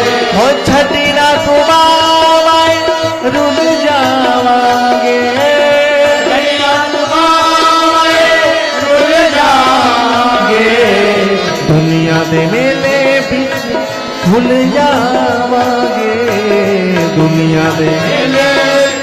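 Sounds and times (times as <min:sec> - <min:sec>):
rhythm accompaniment: 0:00.0 - 0:19.0.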